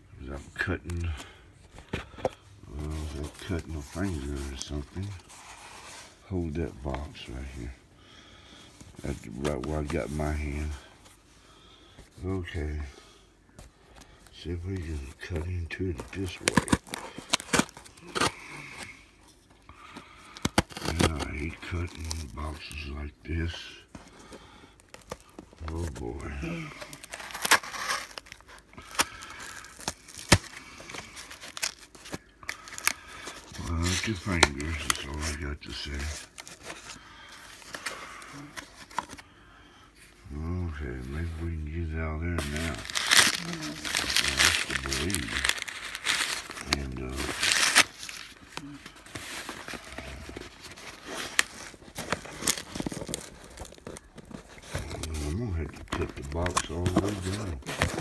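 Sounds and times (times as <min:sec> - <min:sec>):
cardboard ripping: 0:14.8 - 0:18.9, 0:20.4 - 0:22.7, 0:24.9 - 0:39.2, 0:42.4 - 0:58.0.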